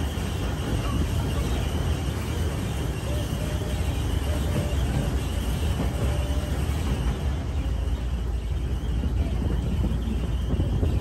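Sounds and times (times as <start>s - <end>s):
rail cart rumbling on track: 0.0s - 11.0s
wind buffeting microphone: 0.0s - 11.0s.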